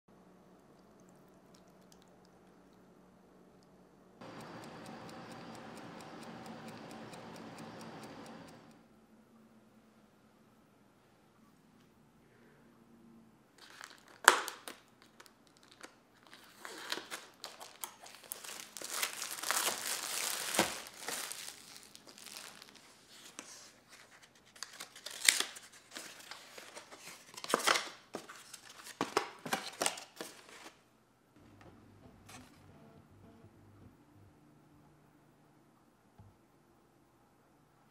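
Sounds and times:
plastic cracking: 13.6 - 16.0, 17.0 - 22.8
shrink wrap tearing: 13.6 - 23.5, 24.4 - 28.0
packaging crinkling and rustling: 13.6 - 30.8.

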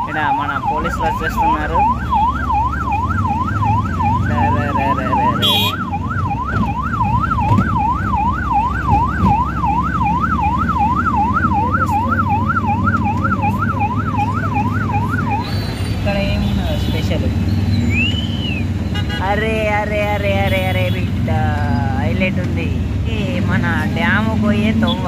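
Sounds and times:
police siren yelping: 0.0 - 15.8
road traffic rumble: 0.0 - 25.0.

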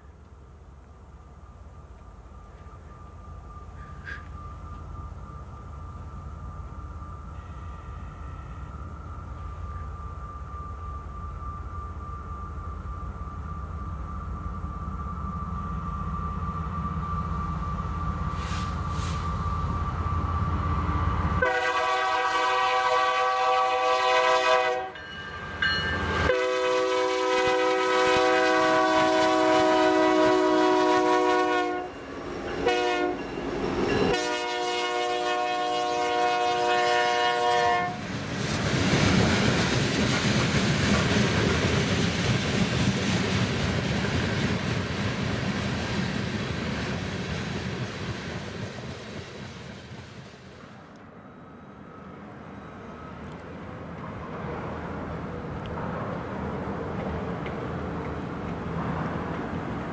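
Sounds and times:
freight cars wheels on rails: 1.2 - 21.5, 38.0 - 51.1, 52.5 - 59.9
locomotive air horn: 18.3 - 19.4, 21.4 - 25.0, 26.2 - 32.0, 32.6 - 33.2, 34.1 - 38.0.

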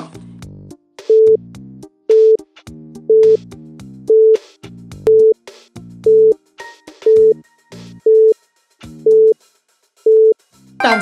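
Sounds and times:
electronic music with a beat: 7.0 - 9.3
timer beeping: 7.1 - 7.4, 8.1 - 8.4.

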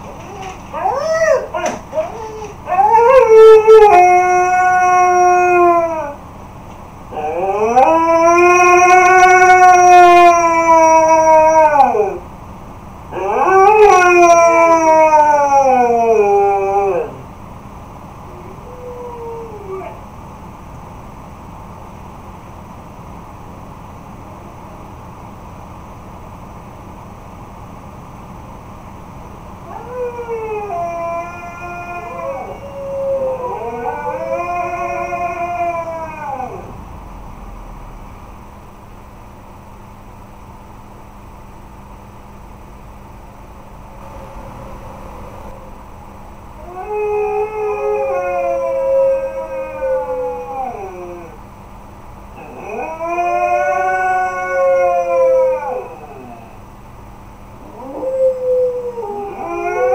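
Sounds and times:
huskies howling: 0.2 - 6.2, 7.1 - 12.3, 13.1 - 17.3, 29.6 - 36.9, 43.9 - 51.5, 52.3 - 56.8, 57.6 - 59.9.

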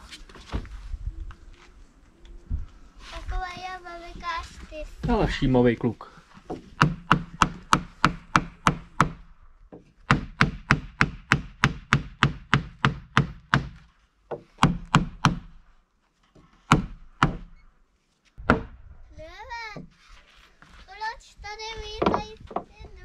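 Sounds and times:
hammer knocking on wood: 6.4 - 15.5, 16.7 - 17.5, 22.0 - 22.7.

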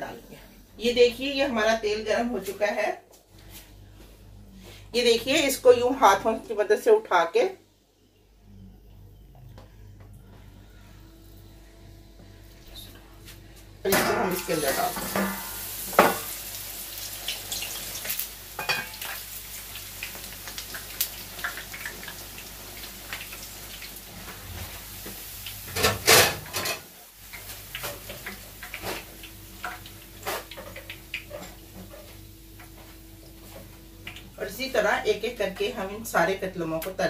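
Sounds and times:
flatbread sizzling in hot oil: 14.3 - 34.4
oil crackling spatters: 15.5 - 25.9, 27.1 - 31.6.

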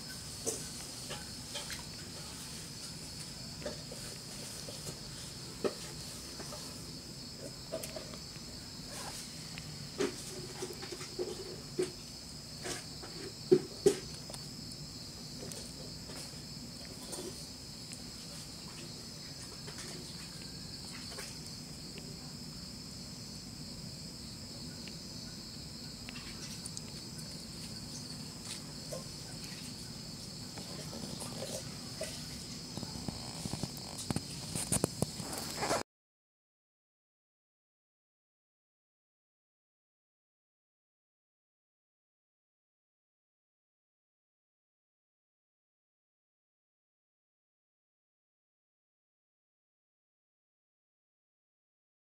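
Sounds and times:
insect chirring: 0.0 - 35.8.

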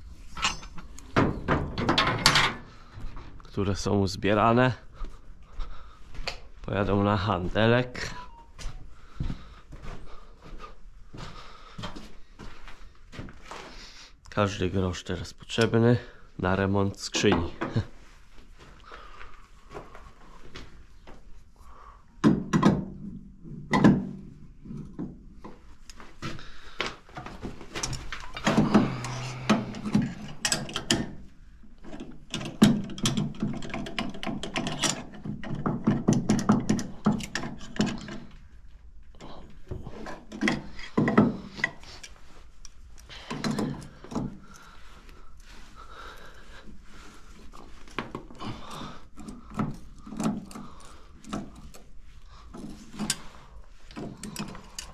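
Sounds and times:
metal tools clanking: 0.2 - 2.8, 27.8 - 31.2, 52.5 - 54.9.

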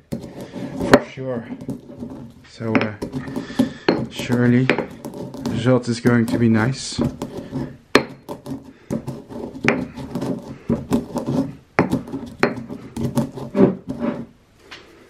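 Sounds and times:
stone pestle knocking in mortar: 0.0 - 14.0
pestle grinding and scraping: 0.0 - 14.4.

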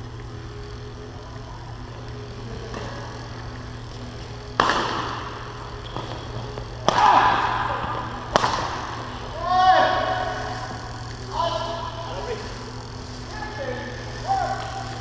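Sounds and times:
steady low hum: 0.0 - 15.0
racket hitting shuttlecock: 4.5 - 10.4.

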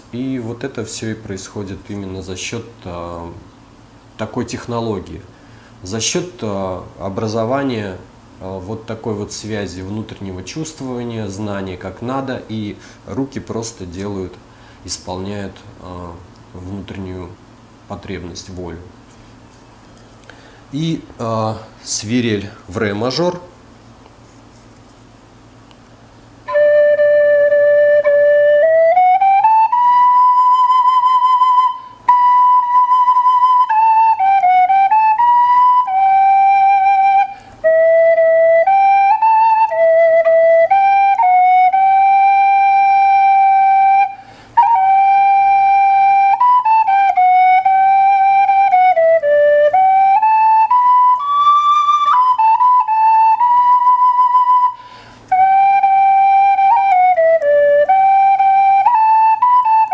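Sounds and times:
end-blown flute melody: 26.4 - 59.9.

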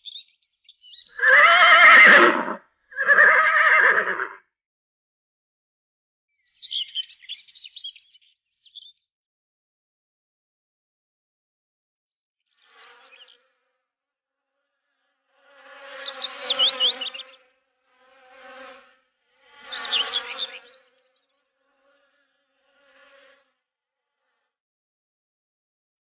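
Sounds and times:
bees buzzing: 15.5 - 17.4, 18.2 - 20.8.

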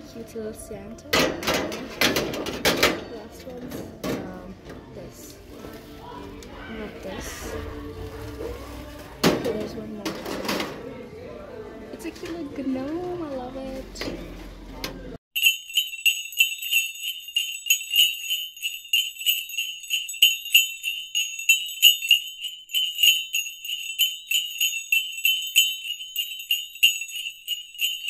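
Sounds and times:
jingle bells shaking: 15.4 - 28.0.

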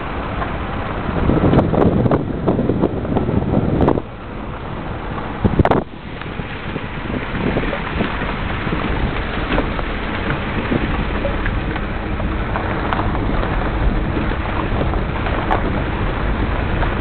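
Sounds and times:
vehicle rumbling on dirt road: 0.0 - 17.0
wind buffeting microphone: 0.0 - 17.0
knocks and rattles: 5.1 - 17.0.

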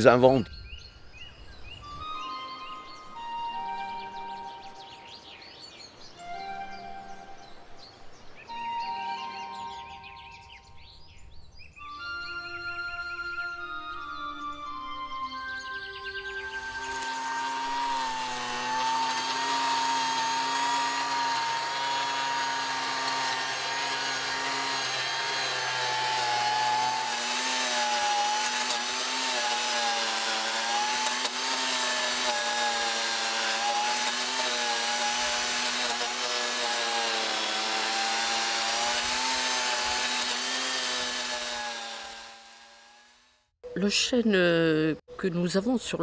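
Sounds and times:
chainsaw cutting wood: 16.4 - 43.5.

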